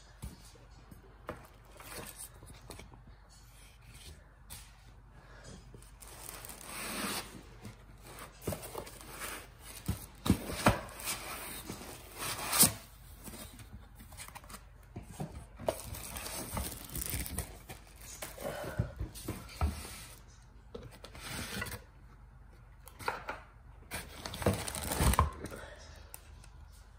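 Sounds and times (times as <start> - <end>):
wrapping rustling and crinkling: 5.8 - 14.7, 15.7 - 18.4.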